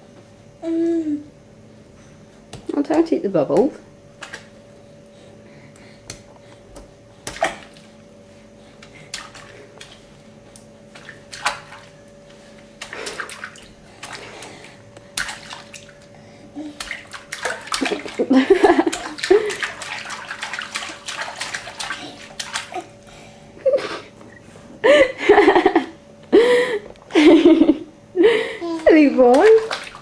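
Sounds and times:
baby splashing bath water: 7.2 - 8.0, 8.8 - 12.1, 12.7 - 23.2, 28.4 - 30.0.

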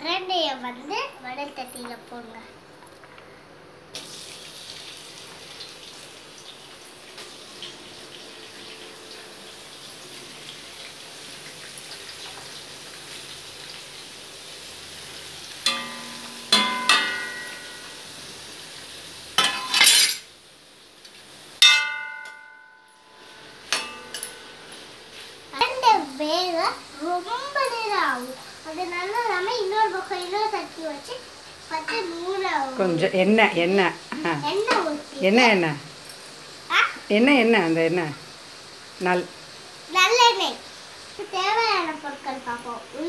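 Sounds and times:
frying sizzle: 3.8 - 43.0
ladle clanking on pan: 15.7 - 18.2, 19.4 - 20.3, 21.6 - 22.9, 23.7 - 25.0.

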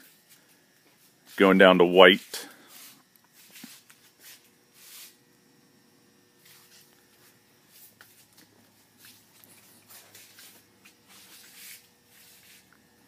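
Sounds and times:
footsteps scuffing and rustling: 2.2 - 5.2, 6.4 - 12.8.

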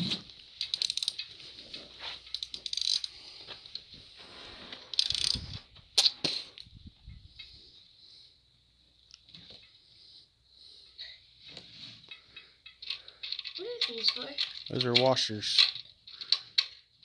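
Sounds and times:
socket ratchet clicking: 0.6 - 1.2, 2.3 - 3.1, 5.0 - 5.4
metal tool clinking on bolts: 12.1 - 17.0.

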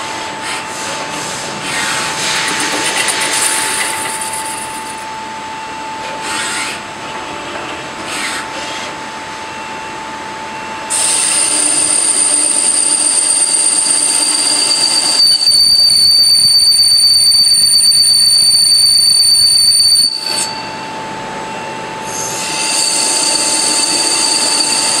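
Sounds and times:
lathe metallic squeal: 1.6 - 5.4, 10.9 - 25.0.

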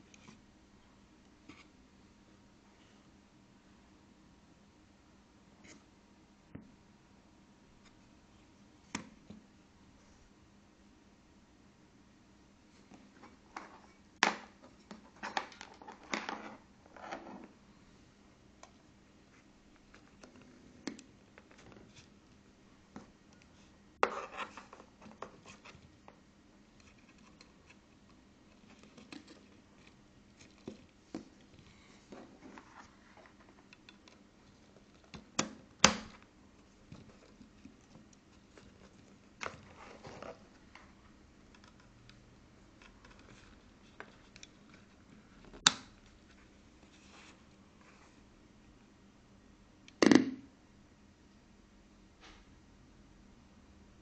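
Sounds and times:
clicks and knocks handling circuit board: 26.8 - 46.2.

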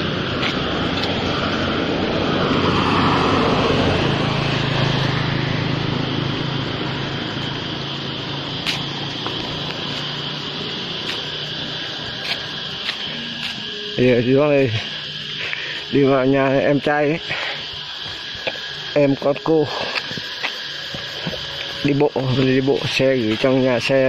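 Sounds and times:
motor vehicle passing: 0.0 - 14.0
steady road noise: 0.0 - 24.0.

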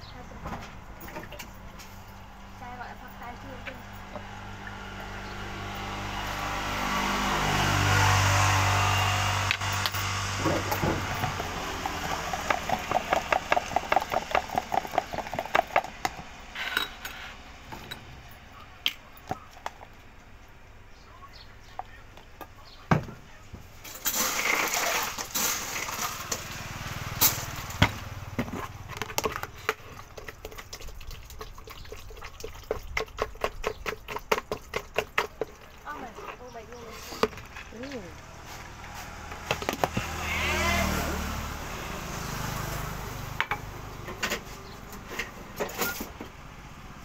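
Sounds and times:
ice rattling and clattering: 9.8 - 16.1, 23.8 - 38.0.

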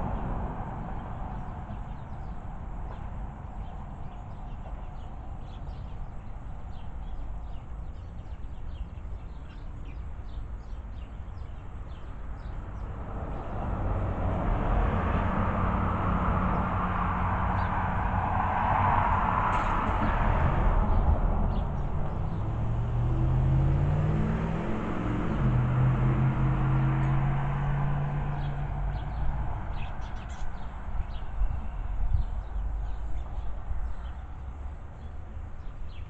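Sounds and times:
street traffic: 0.0 - 36.0
small birds chirping: 1.0 - 13.7, 28.3 - 36.0
low engine hum: 11.8 - 35.7.

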